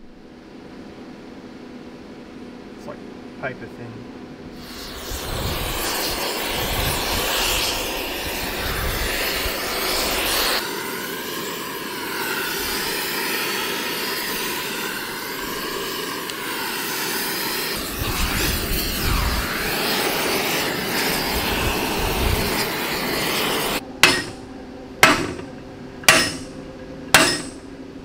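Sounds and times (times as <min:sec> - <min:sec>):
gas torch flame rushing: 0:04.5 - 0:24.4.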